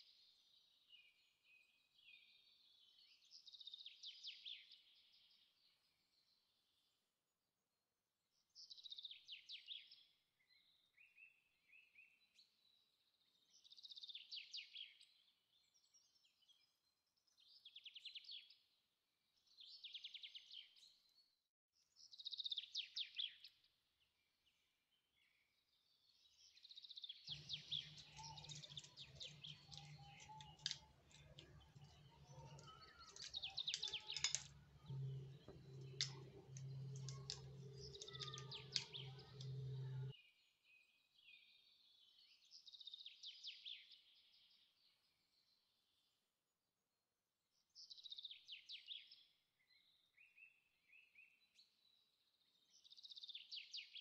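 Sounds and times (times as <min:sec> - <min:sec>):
faint birdsong trills: 0:25.2 - 0:46.1
low steady hum: 0:27.3 - 0:40.1.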